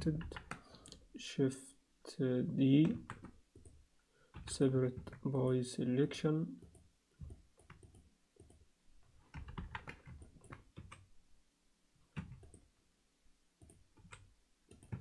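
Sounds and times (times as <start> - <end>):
computer keyboard keys: 0.0 - 1.0, 2.8 - 3.8, 4.4 - 5.2, 6.7 - 8.6, 9.3 - 11.1, 12.2 - 12.6, 13.6 - 15.0.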